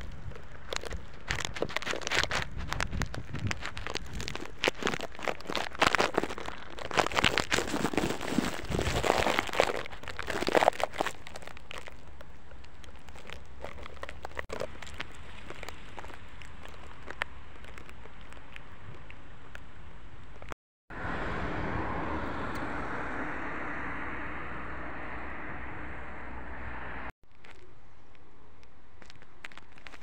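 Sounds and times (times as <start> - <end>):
footsteps crunching on gravel: 0.0 - 19.1, 29.0 - 30.0
steady low rumble: 20.9 - 27.2.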